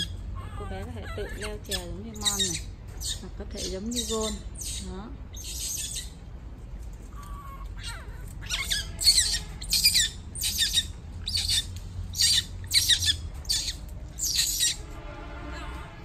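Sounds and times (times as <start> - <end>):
baby monkey screaming: 0.0 - 6.3, 7.1 - 14.8.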